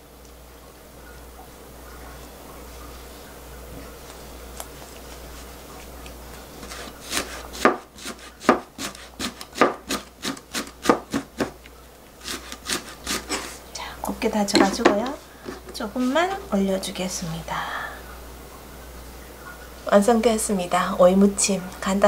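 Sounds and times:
knife chopping on cutting board: 6.7s - 11.6s.

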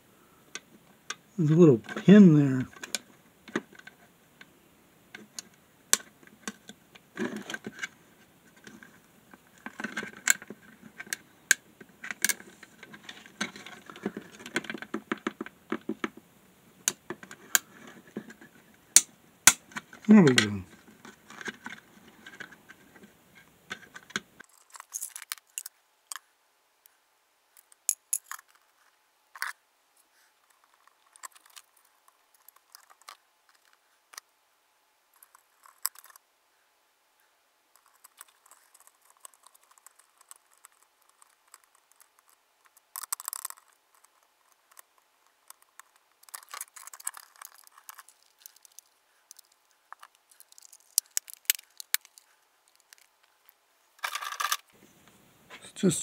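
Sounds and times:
plastic scraping and rubbing: 6.2s - 11.2s, 11.9s - 16.2s, 19.6s - 24.5s.

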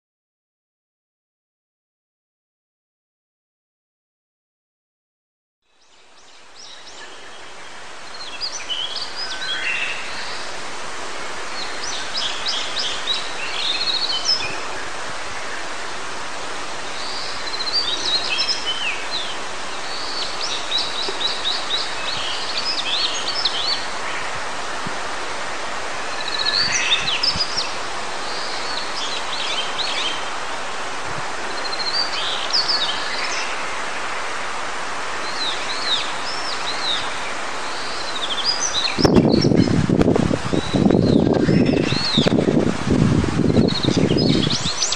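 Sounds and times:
wind: 5.6s - 44.9s
mountain stream rushing: 5.9s - 44.9s
bird singing quick phrases and trills: 38.4s - 39.8s.

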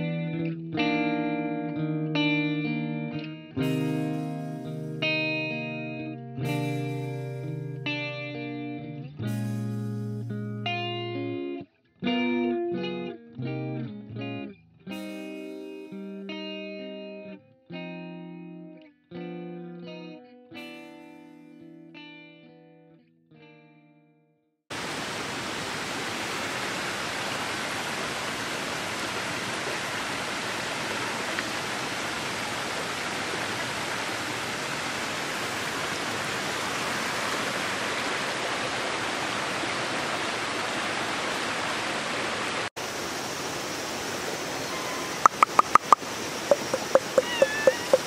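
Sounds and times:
plucked guitar music: 0.0s - 24.2s, 45.2s - 48.0s
mountain stream running water: 24.7s - 48.0s.

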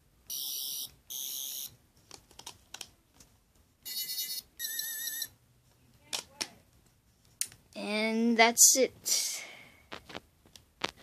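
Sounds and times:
toy high-pitched buzzing bursts: 0.3s - 1.7s, 3.9s - 5.3s.

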